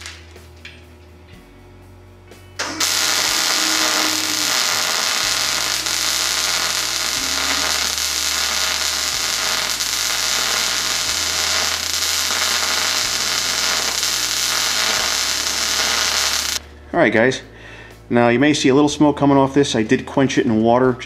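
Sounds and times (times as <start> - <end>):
welding arc hissing: 2.6 - 16.6.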